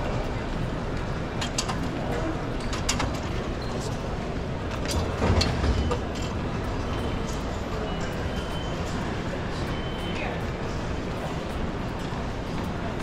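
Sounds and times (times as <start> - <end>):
sharp clicks and knocks: 1.3 - 4.0.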